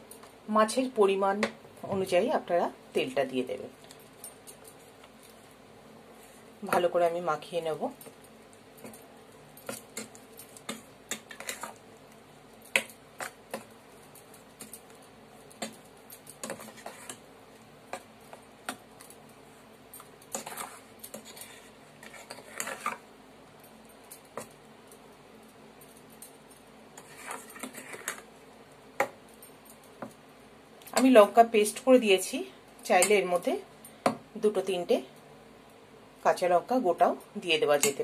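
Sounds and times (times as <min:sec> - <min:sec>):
metal spoon scraping steel bowl: 0:16.4 - 0:17.2, 0:20.3 - 0:23.0, 0:27.0 - 0:28.2.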